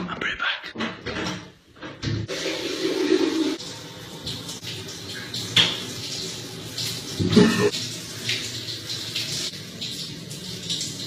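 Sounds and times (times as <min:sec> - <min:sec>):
shower water spraying: 0:02.3 - 0:11.0.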